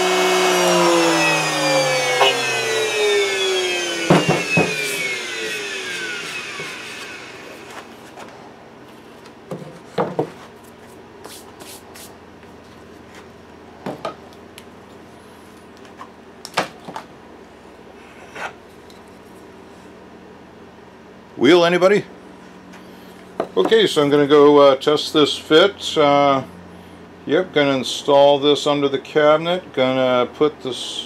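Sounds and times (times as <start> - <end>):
router spinning down: 0.0 - 7.9.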